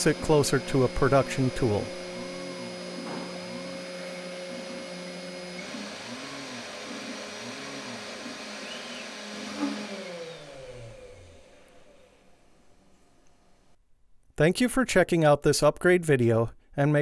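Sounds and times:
stepper motors whining: 0.0 - 12.3
spindle motor humming: 0.0 - 13.4.

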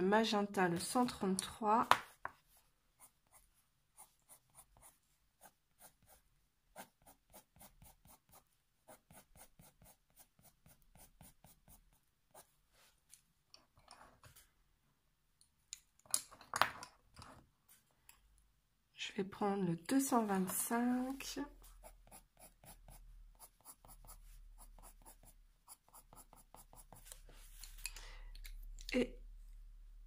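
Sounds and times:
coloured pencil scratching on paper: 2.0 - 12.6, 20.4 - 27.7.

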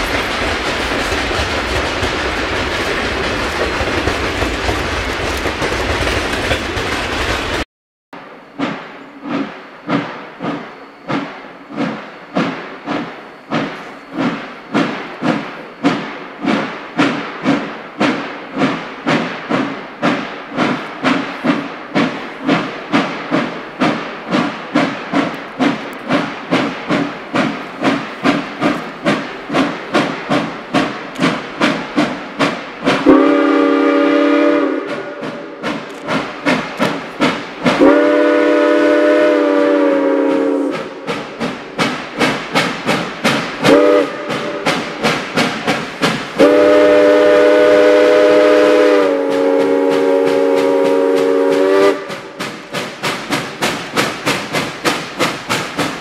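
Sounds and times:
steam locomotive exhaust chuffing: 0.0 - 7.6, 8.5 - 56.0
steam locomotive chime whistle: 33.0 - 35.6, 37.8 - 41.0, 43.7 - 44.8, 46.4 - 52.4.

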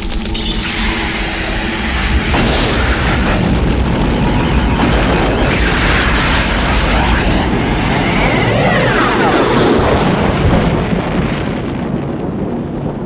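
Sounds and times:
spaceship rushing roar: 0.0 - 10.3.

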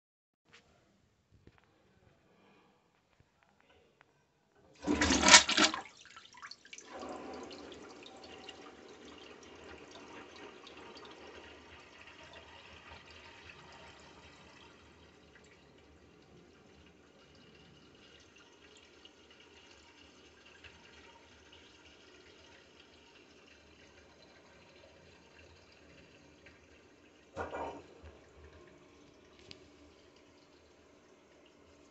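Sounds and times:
water swirling in bowl: 4.8 - 8.8
toilet flushing rush of water: 4.8 - 31.9.

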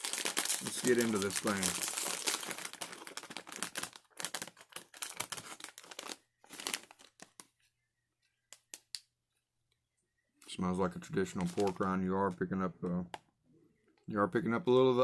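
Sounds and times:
snack bag crinkling: 0.0 - 7.5.

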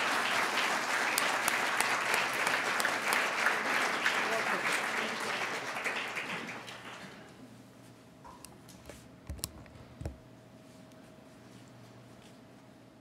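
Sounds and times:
audience applause: 0.0 - 7.4.

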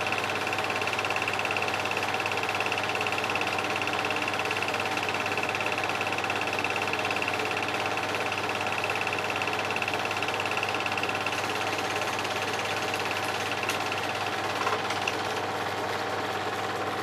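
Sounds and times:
film projector clattering: 0.0 - 17.0
projector high whine: 5.5 - 17.0.

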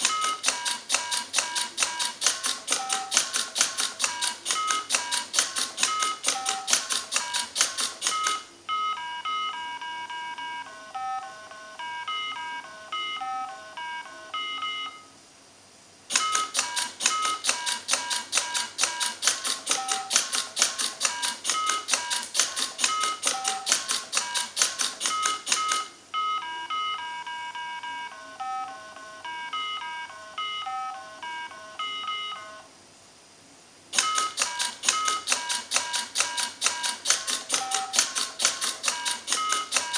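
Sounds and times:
rapid mechanical clicking: 0.0 - 8.4, 16.1 - 25.9, 33.9 - 39.9
electronic game beeps: 0.0 - 15.1, 16.2 - 20.3, 21.1 - 32.6, 36.4 - 39.9.

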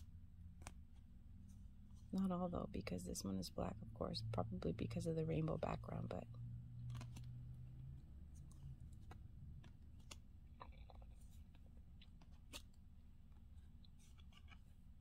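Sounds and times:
low steady hum: 0.0 - 15.0
cards clicking and rustling: 0.5 - 1.1, 6.8 - 7.4, 8.3 - 15.0.

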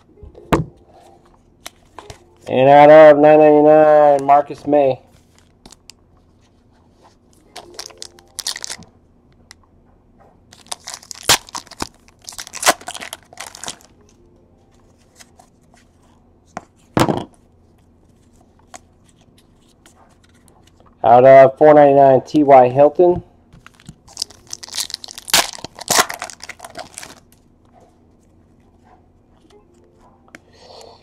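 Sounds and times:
cards being handled: 6.4 - 8.8, 14.7 - 16.9, 17.8 - 20.9, 23.6 - 27.5
foil wrapper tearing and crinkling: 7.7 - 8.8, 10.5 - 13.9, 23.7 - 27.2.

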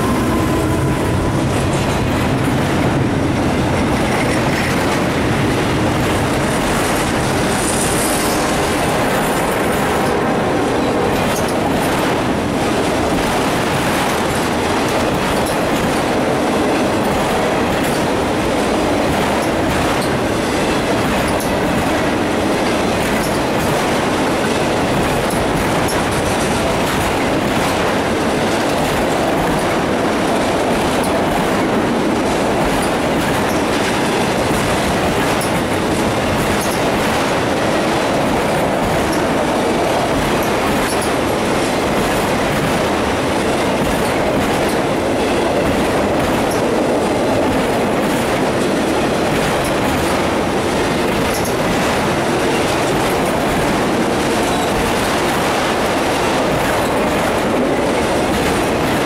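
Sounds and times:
freight train rolling past: 0.0 - 59.0.

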